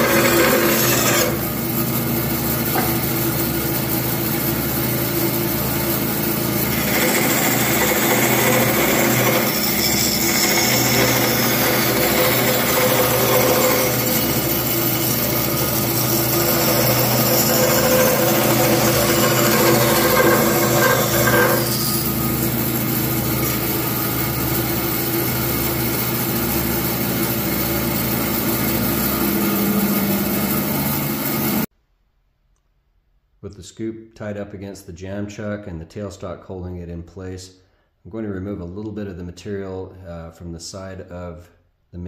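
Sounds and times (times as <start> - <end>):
bandsaw cutting wood: 0.0 - 31.7
motor hum: 0.0 - 31.7.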